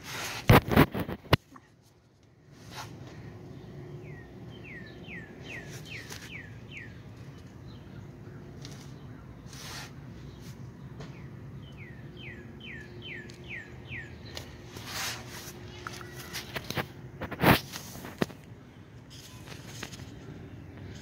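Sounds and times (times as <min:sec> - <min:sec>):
songbird singing falling notes: 0:04.0 - 0:09.4, 0:10.2 - 0:14.7.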